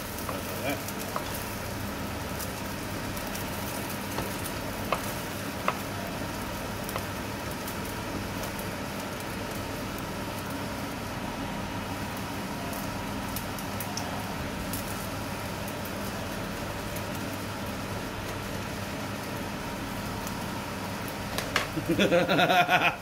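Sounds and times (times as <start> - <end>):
omelette sizzling in frying pan: 0.0 - 23.0.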